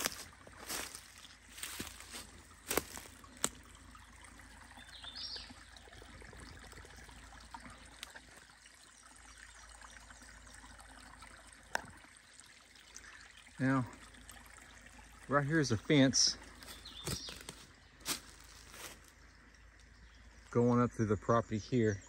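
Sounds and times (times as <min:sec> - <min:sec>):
brook trickling: 0:00.0 - 0:22.0.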